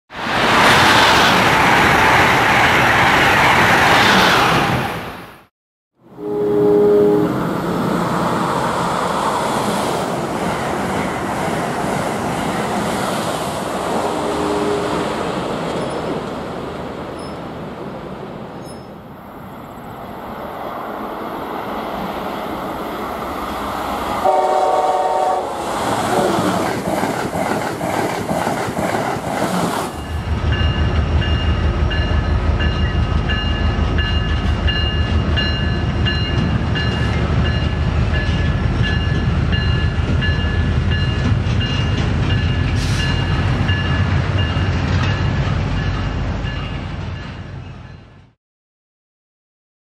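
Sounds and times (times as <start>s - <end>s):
trains rushing past: 0.1s - 48.4s
train horn: 6.0s - 7.8s, 14.0s - 15.1s, 24.2s - 26.6s
higher train horn chord: 6.0s - 8.4s, 14.0s - 15.2s, 24.2s - 26.6s.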